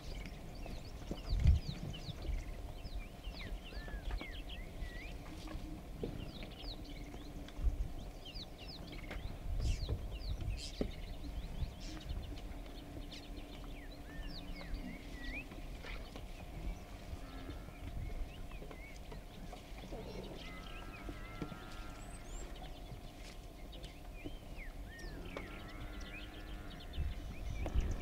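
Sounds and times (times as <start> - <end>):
birds chirping: 0.0 - 28.0
low rumbling background: 0.0 - 28.0
animals thumping: 14.5 - 23.2.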